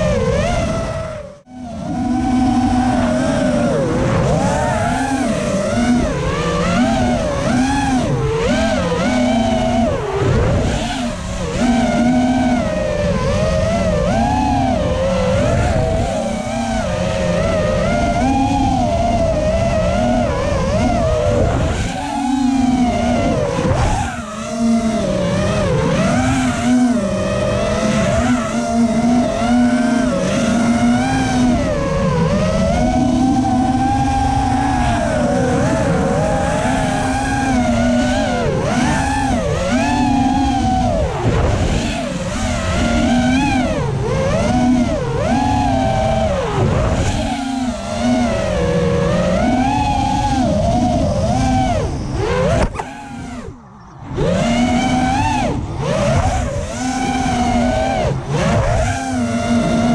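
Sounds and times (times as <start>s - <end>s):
drone motors whining: 0.0s - 59.9s
wind noise: 0.0s - 59.9s.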